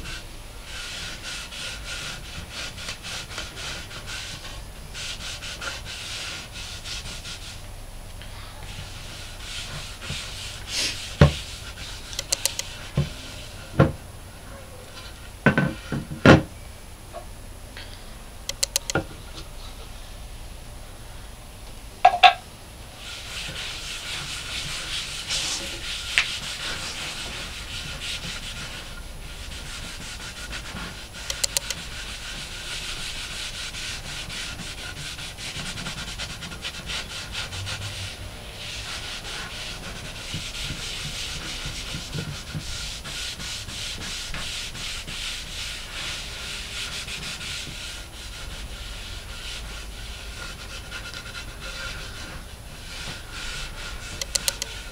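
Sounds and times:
pad rubbing wooden board: 0.0 - 7.6, 8.7 - 14.0, 23.0 - 54.9.

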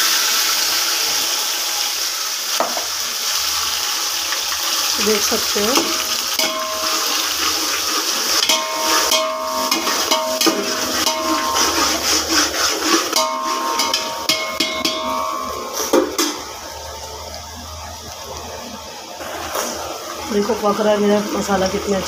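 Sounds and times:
paste sizzling in hot oil: 0.0 - 22.0
pan ringing tones: 5.0 - 12.4, 13.1 - 18.2.

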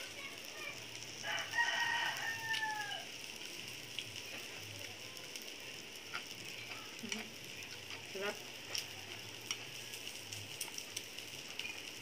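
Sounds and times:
meat sizzling on a grill: 0.0 - 12.0
rooster crowing: 1.2 - 3.2.

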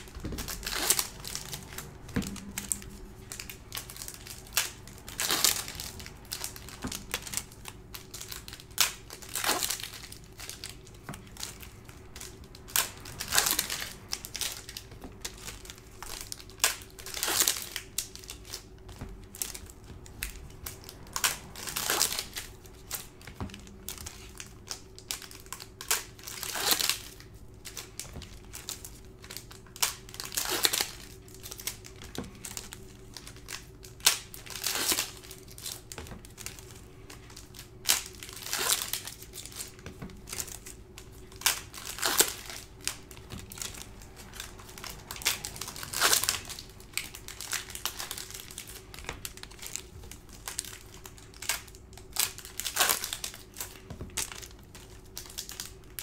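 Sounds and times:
faint steady hum: 0.0 - 56.0
foil wrappers crinkling: 0.0 - 56.0.

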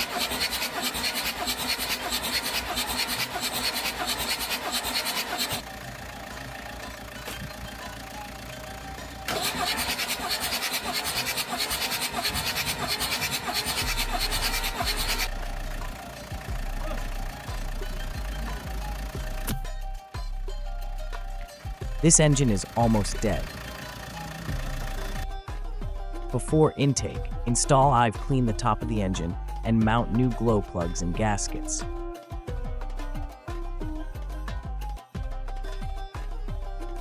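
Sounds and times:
diesel engine cranking on starter: 0.0 - 19.8, 21.6 - 25.4.

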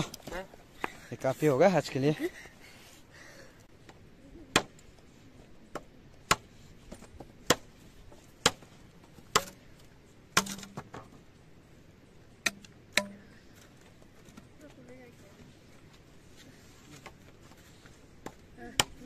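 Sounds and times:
machete chopping bamboo: 8.4 - 8.7, 9.3 - 9.6, 10.4 - 10.8, 12.4 - 13.2.

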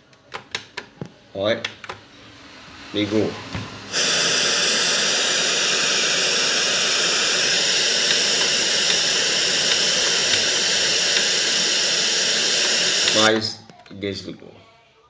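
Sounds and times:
radio static hiss: 3.2 - 13.7.

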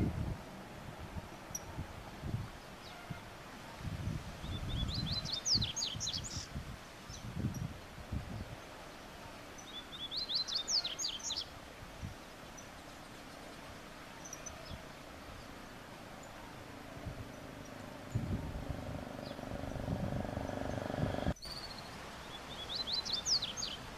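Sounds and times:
low rustling thumps: 18.1 - 21.4.

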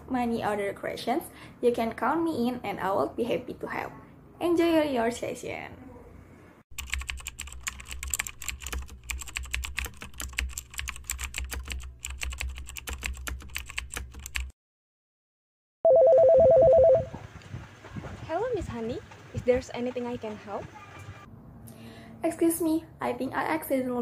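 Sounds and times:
keyboard typing clicks: 6.8 - 14.5
telephone ringing: 15.9 - 17.1.

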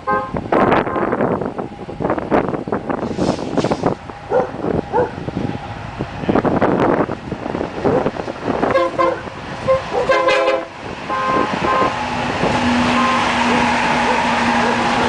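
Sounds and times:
locomotive air horn blasts: 0.0 - 1.2, 8.6 - 14.6
locomotive diesel engines droning: 0.0 - 15.0.

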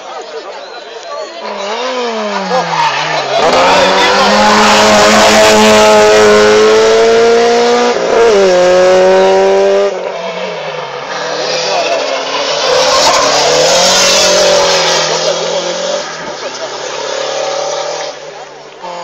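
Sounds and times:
racing car engine accelerating: 1.5 - 10.1.

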